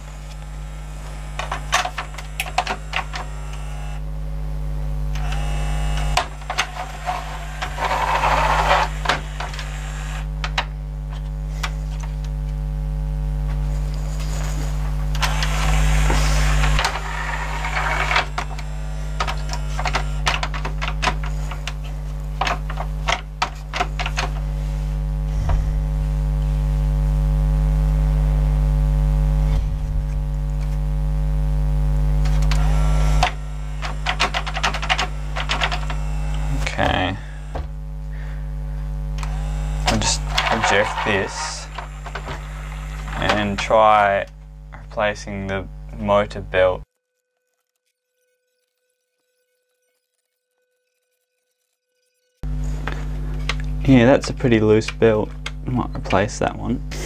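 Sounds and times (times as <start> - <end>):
motor whirring: 0.0 - 4.1, 5.0 - 12.3, 13.7 - 25.8, 32.2 - 45.2, 46.8 - 54.0
steady electrical hum: 0.0 - 57.0
plastic clicks: 32.2 - 36.4.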